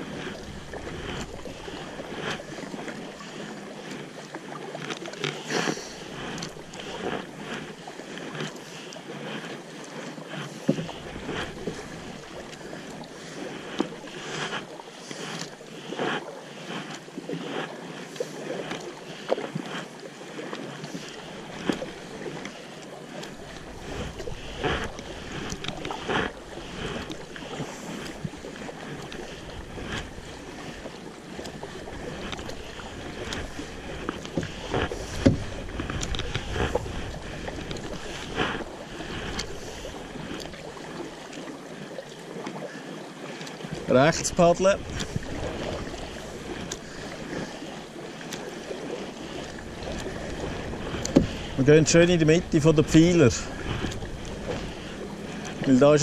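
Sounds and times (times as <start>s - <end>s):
water rushing: 0.0s - 56.0s
water splashing against boat: 0.0s - 56.0s
wind rumble on microphone: 43.8s - 47.4s.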